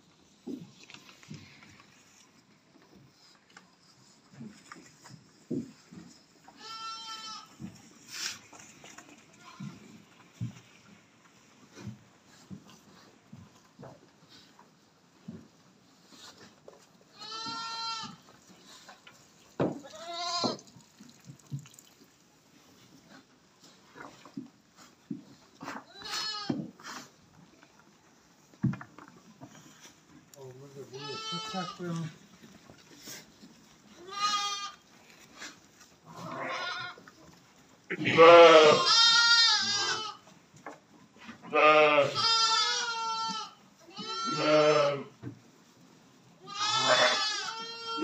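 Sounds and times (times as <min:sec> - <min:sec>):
goat or sheep bleating: 0:06.5 - 0:07.6, 0:09.3 - 0:09.8, 0:17.1 - 0:18.2, 0:19.8 - 0:20.7, 0:25.9 - 0:26.6, 0:30.9 - 0:32.0, 0:33.9 - 0:34.8, 0:35.4 - 0:37.0, 0:37.9 - 0:40.2, 0:41.4 - 0:45.1, 0:46.4 - 0:48.0
higher wavering bleat: 0:37.9 - 0:40.2, 0:44.0 - 0:45.1, 0:46.5 - 0:48.0.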